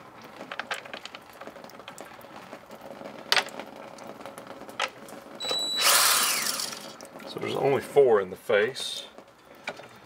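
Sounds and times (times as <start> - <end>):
cordless drill: 5.4 - 7.0.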